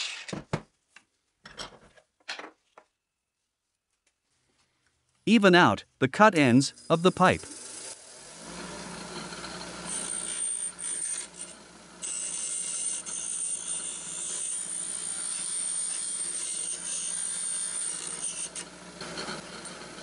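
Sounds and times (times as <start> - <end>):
bench grinder humming: 6.7 - 20.0.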